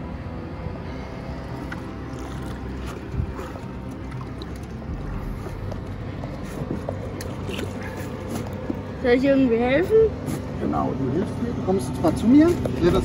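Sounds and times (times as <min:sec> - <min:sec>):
water splashing: 0:01.6 - 0:08.9.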